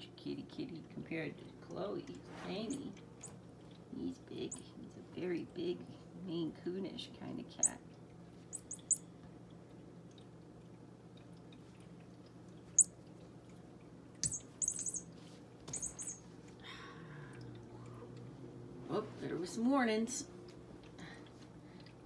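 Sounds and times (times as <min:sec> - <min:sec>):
high-pitched bird-like chirps: 0:08.5 - 0:09.0, 0:14.2 - 0:15.1, 0:15.7 - 0:16.2.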